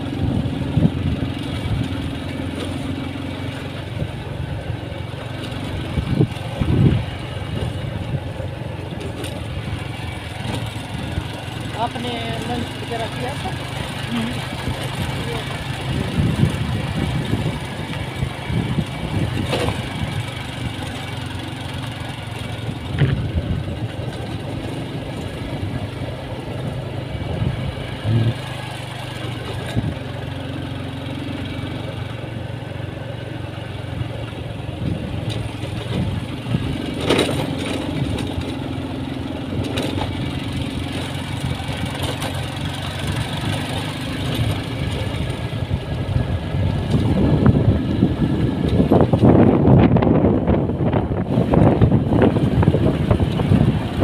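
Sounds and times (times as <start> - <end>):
road noise rushing: 0.0 - 54.0
vehicle engine hum: 0.0 - 54.0
knocks and rattles from bumps: 35.2 - 38.6.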